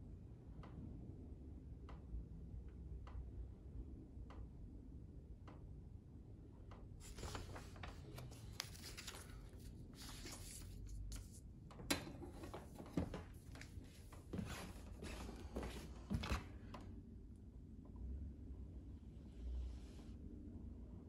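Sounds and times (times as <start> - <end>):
paper rustling: 7.0 - 11.4, 12.0 - 16.5.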